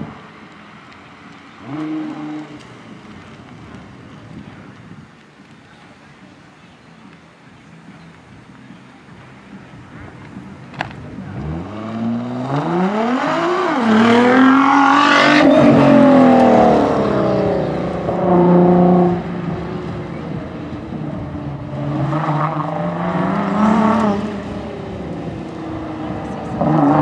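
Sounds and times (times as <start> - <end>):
car engine revving hard: 1.6 - 2.6, 11.2 - 27.0.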